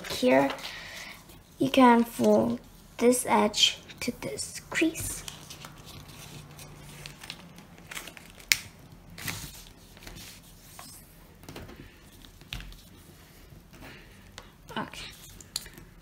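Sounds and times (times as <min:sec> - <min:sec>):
paper rustling and crinkling: 0:04.8 - 0:13.8.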